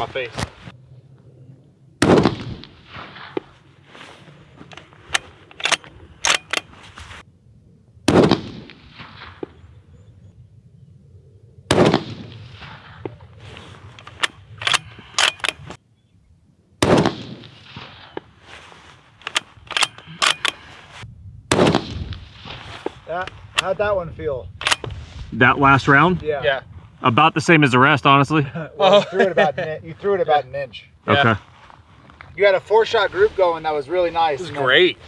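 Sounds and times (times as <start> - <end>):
rifle shots with echo: 2.0 - 3.5, 8.1 - 9.6, 11.7 - 13.0, 16.8 - 18.1, 21.5 - 22.6
rifle bolt clicks: 4.7 - 6.7, 14.0 - 15.8, 19.2 - 20.7, 24.6 - 24.9.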